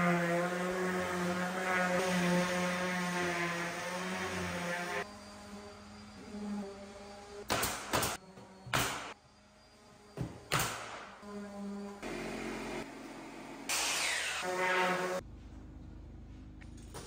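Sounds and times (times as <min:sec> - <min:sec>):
orbital sander buzzing: 0:00.0 - 0:06.6.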